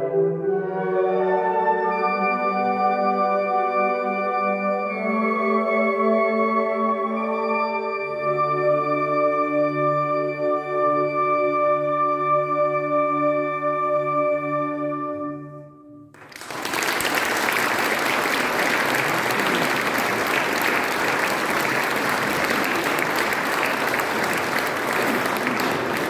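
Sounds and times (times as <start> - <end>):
audience applause: 16.2 - 26.0.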